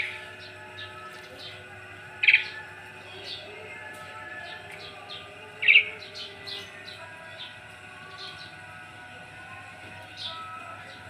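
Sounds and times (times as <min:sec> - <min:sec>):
starling loud calls: 0:05.6 - 0:06.6.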